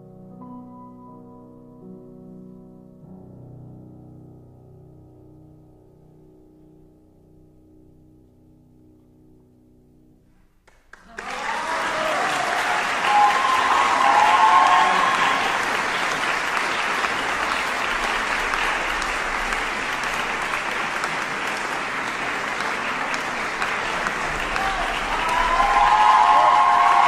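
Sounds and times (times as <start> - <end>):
audience applause: 10.9 - 27.0.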